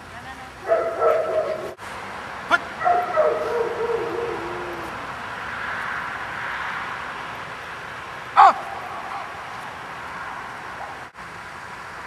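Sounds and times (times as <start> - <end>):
dog yipping: 2.8 - 4.9
dog whining: 3.0 - 5.0.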